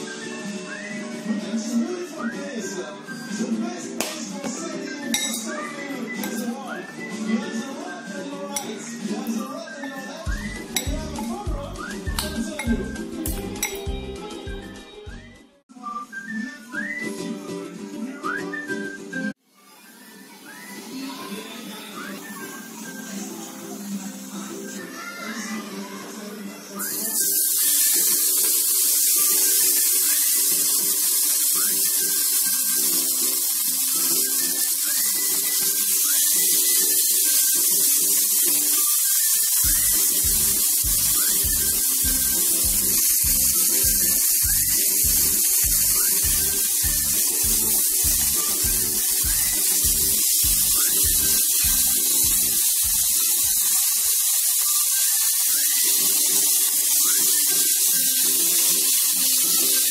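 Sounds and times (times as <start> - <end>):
background music: 0.0 - 19.4, 20.8 - 59.9
meat sizzling in oil: 19.8 - 25.6, 26.8 - 59.9.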